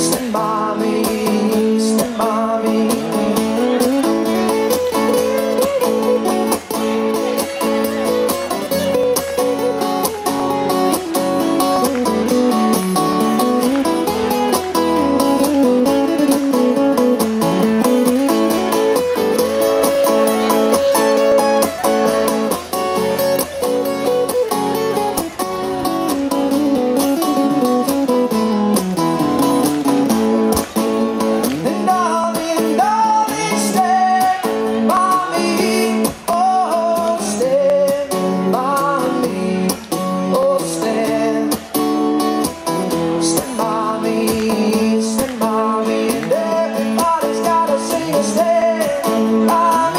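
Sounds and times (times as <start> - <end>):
man singing: 0.0 - 9.8, 30.3 - 49.9
acoustic guitars strummed and picked: 0.0 - 49.9.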